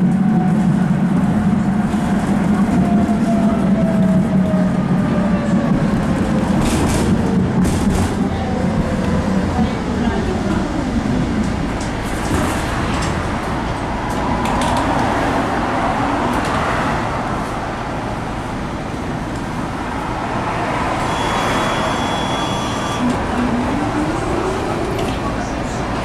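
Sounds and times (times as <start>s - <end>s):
tram rolling on track: 0.0s - 26.0s
high steady tone: 21.0s - 23.1s.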